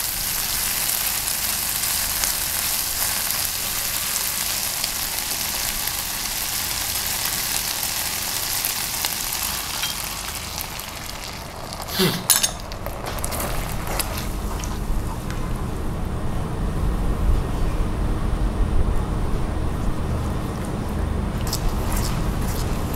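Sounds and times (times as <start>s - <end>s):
sauce sizzling in a frying pan: 0.0s - 15.4s
sauce bubbling: 0.1s - 16.1s, 21.3s - 22.9s
spatula stirring: 21.4s - 22.9s.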